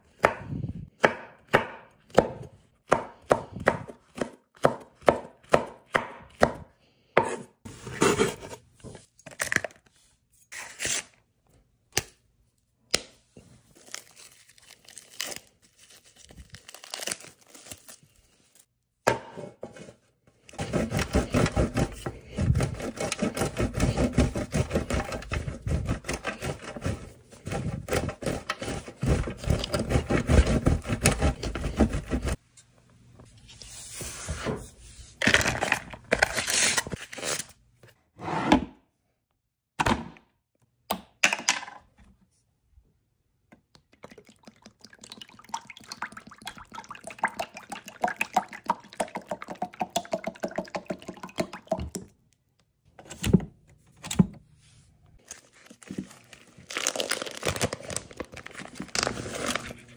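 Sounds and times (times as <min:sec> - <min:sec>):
knife chopping on cutting board: 0:00.2 - 0:06.6.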